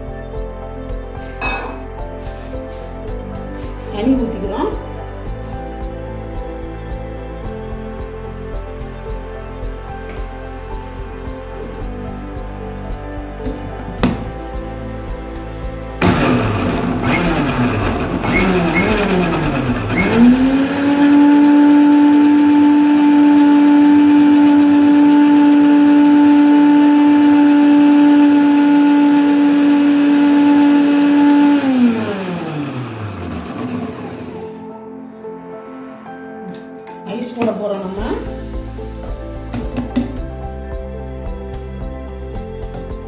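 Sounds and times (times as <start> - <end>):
mixer grinder motor running: 16.0 - 34.6.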